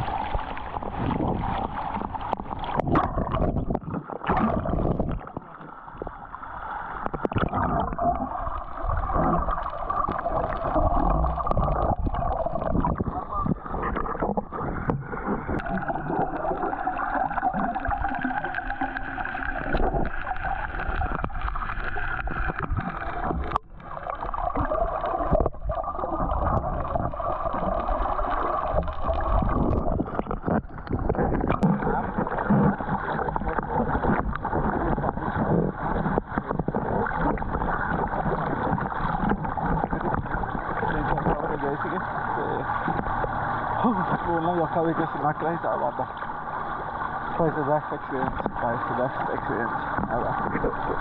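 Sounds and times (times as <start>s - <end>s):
boat engine running: 39.2s - 51.0s.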